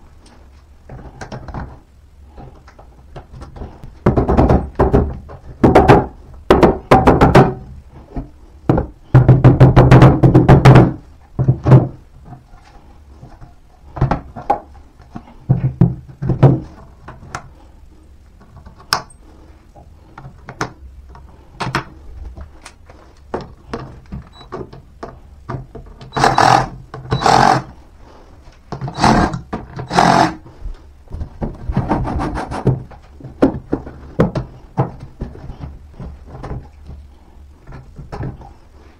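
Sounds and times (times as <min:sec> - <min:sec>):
panels knocking when handled: 0:03.1 - 0:12.4
scraping sounds: 0:31.2 - 0:34.2.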